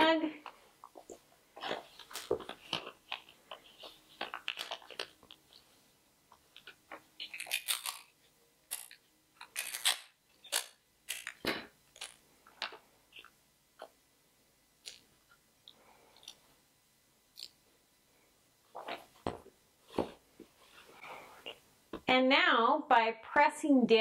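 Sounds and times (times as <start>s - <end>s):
paper and tape crinkling: 0.4s - 13.3s.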